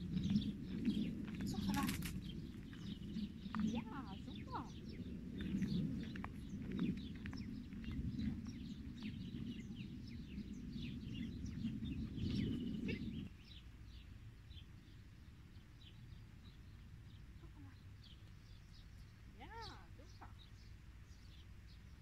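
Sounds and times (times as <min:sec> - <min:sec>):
low rumbling noise: 0:00.0 - 0:14.0
small birds chirping: 0:00.0 - 0:22.0.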